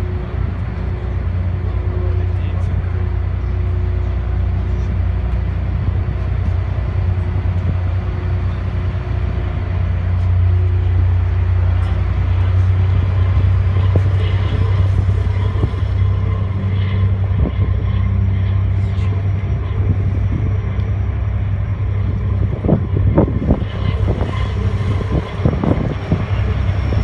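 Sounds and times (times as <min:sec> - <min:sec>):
ferry engines droning: 0:00.0 - 0:27.0
wind and water rushing: 0:21.3 - 0:27.0.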